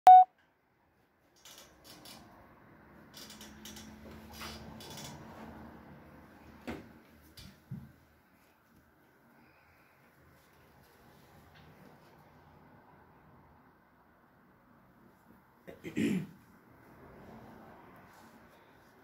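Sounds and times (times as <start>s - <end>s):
small clicks: 1.4s - 2.3s.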